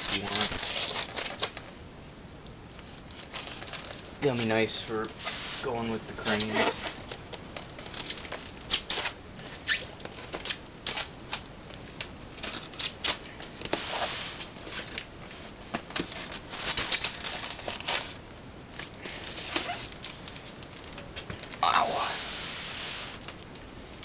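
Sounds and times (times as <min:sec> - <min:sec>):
styrofoam scraping against cardboard: 0:00.0 - 0:01.5, 0:04.3 - 0:07.0, 0:12.4 - 0:15.0, 0:16.1 - 0:18.2, 0:19.0 - 0:19.9, 0:21.7 - 0:23.2.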